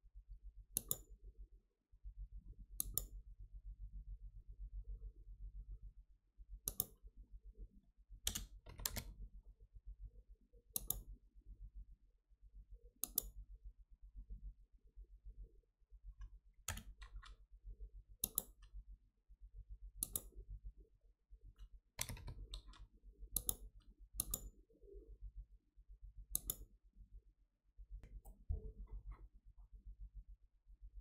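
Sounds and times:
faint low hum: 0.2s - 31.0s
computer mouse clicks: 0.8s - 1.1s, 2.8s - 3.2s, 6.6s - 7.0s, 8.3s - 9.2s, 10.7s - 11.1s, 13.0s - 13.4s, 16.2s - 17.4s, 18.2s - 18.8s, 20.0s - 20.4s, 21.6s - 24.6s, 26.3s - 26.7s.

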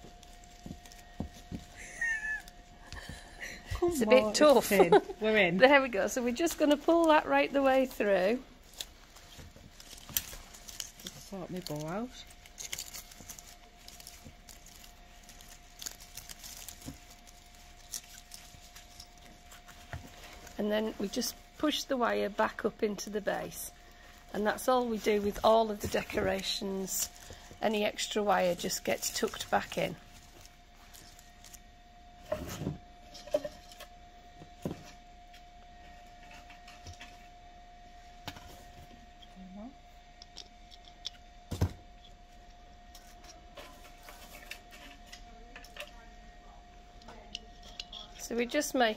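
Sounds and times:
crackles and knocks: 0.0s - 4.6s, 5.6s - 37.6s
faint steady hum: 0.0s - 48.9s
fabric ribbon rustling: 6.0s - 31.6s.

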